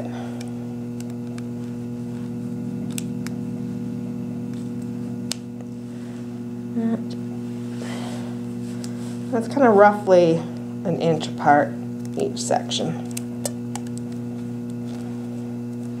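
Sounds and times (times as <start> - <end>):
electrical mains hum: 0.0 - 16.0
electrical blip: 2.4 - 5.7.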